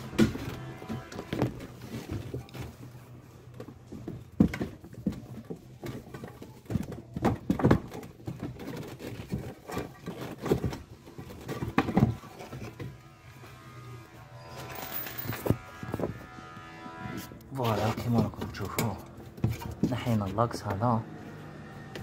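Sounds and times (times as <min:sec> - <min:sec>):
metal parts clicking and rattling: 0:14.5 - 0:16.1.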